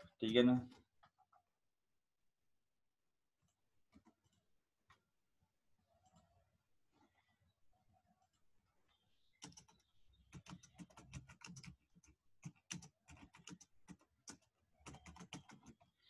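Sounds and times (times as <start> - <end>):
keyboard typing: 9.2 - 16.0.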